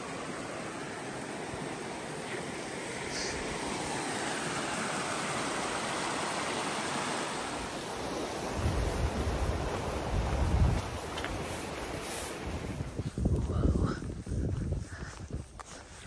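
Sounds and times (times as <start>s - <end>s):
stream rushing over rocks: 0.0s - 12.9s
wind buffeting microphone: 8.0s - 16.0s.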